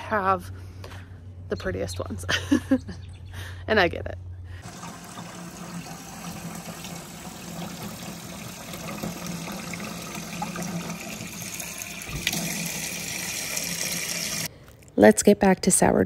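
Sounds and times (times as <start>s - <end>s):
tap water running into sink: 4.6s - 14.5s.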